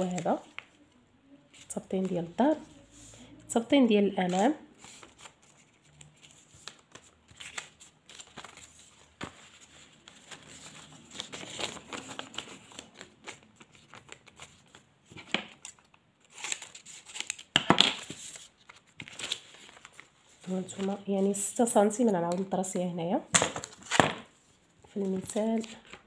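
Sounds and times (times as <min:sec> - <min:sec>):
paper rustling and crinkling: 0:04.2 - 0:21.5, 0:23.5 - 0:26.0.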